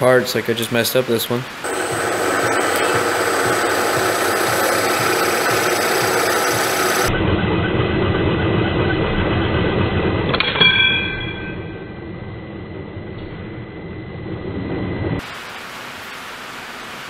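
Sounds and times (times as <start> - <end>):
drill running: 1.6 - 7.1
bang with metallic ring: 10.3 - 12.0.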